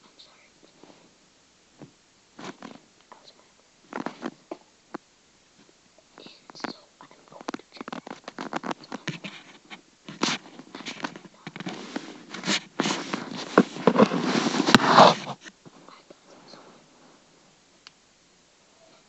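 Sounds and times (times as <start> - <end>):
fabric and pillow rustling: 0.6 - 2.9, 3.8 - 4.6, 7.4 - 17.6.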